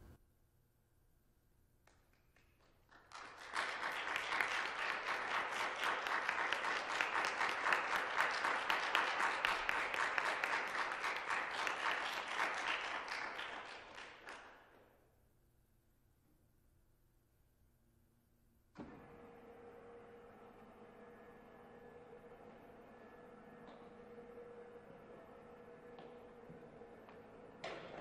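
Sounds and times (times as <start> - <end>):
audience applauding: 1.9 - 14.8.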